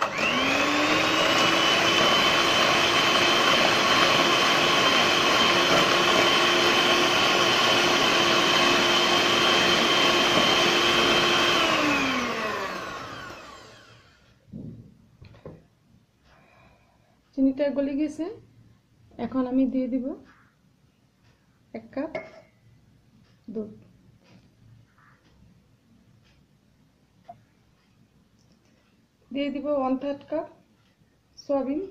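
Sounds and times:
electric hand mixer whining: 0.0s - 14.2s.

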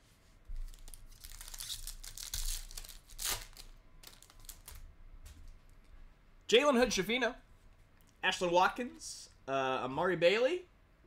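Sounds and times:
foil wrapper crinkling: 0.6s - 4.8s.

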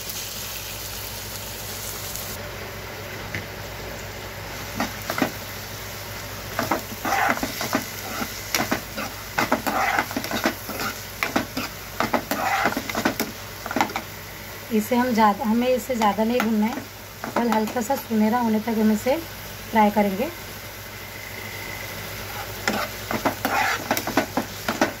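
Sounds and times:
onions sizzling in oil: 0.0s - 25.0s
metal spoon scraping a pan: 6.6s - 14.0s, 22.3s - 24.9s.

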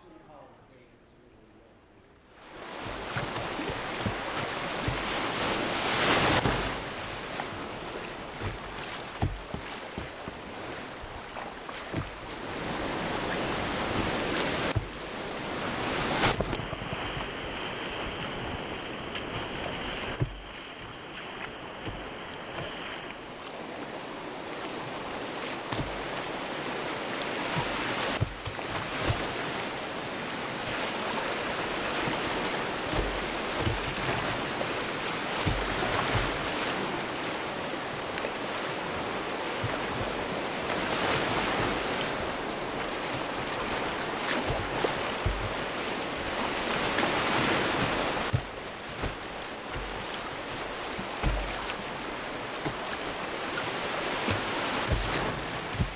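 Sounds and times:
whitewater rapids rushing: 2.4s - 55.9s
low thumps: 44.4s - 46.4s, 47.8s - 51.6s.

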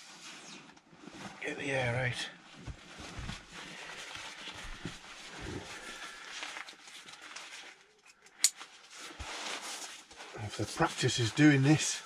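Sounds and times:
dry bag rustling and crinkling: 2.4s - 8.0s, 8.6s - 12.0s.

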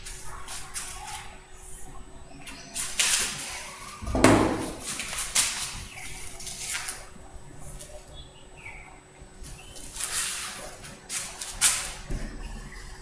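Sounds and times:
loud thump: 4.0s - 4.9s.

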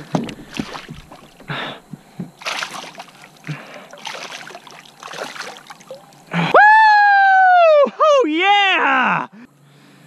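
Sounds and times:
fish splashing and thrashing: 0.0s - 6.4s
water dripping: 2.4s - 6.3s
person shouting woo: 6.5s - 9.3s.

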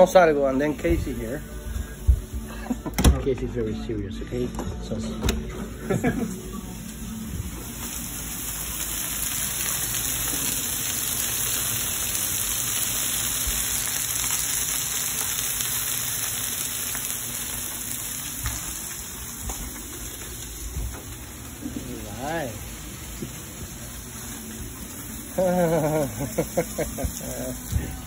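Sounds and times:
meat sizzling on griddle: 5.9s - 28.0s.

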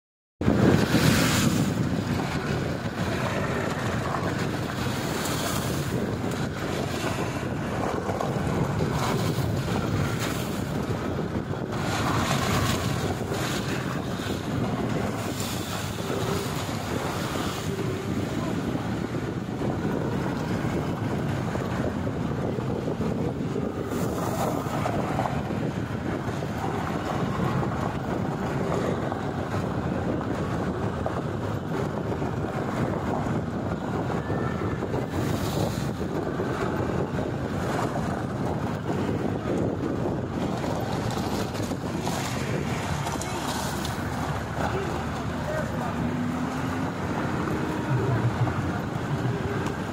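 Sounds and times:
wind buffeting microphone: 0.4s - 49.9s
jeep driving over gravel: 35.2s - 49.9s.

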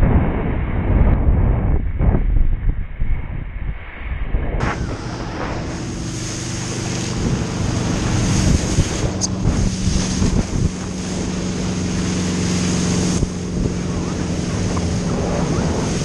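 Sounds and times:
wind buffeting microphone: 0.0s - 16.0s
boat engine drone: 4.6s - 16.0s
water rushing and spraying: 4.6s - 16.0s.

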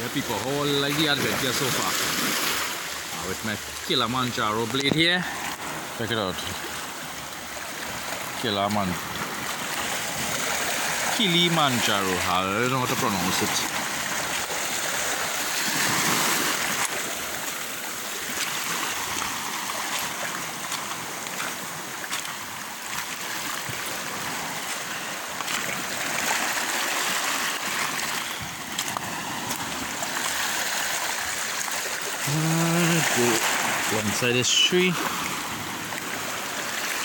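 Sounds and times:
small waves washing over pebbles: 0.0s - 37.0s.

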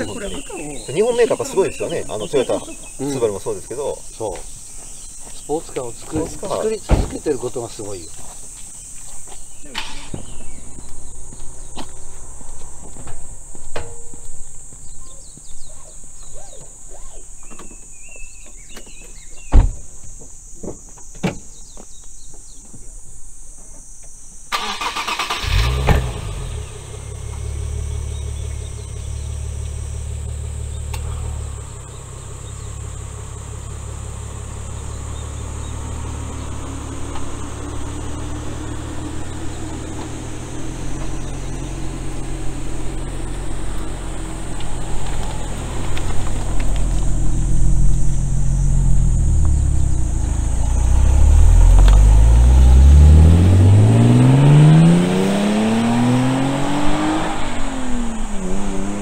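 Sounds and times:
car door shutting: 6.1s - 7.5s, 18.7s - 19.9s
car engine starting and idling: 9.5s - 14.7s, 24.5s - 59.0s.

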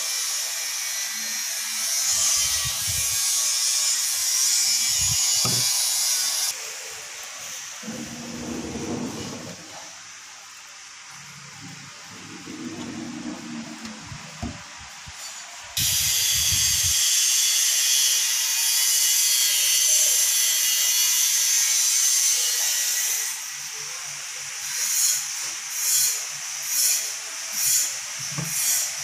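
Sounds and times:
loud steady hiss: 0.2s - 20.4s
drawer pushed shut: 5.4s - 5.7s, 11.6s - 14.7s.

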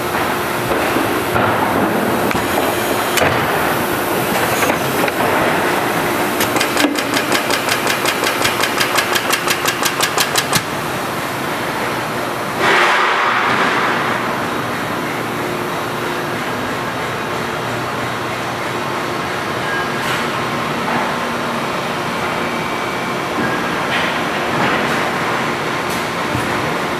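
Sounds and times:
industrial machinery running: 0.0s - 26.9s
fast even clicking: 6.4s - 10.7s.

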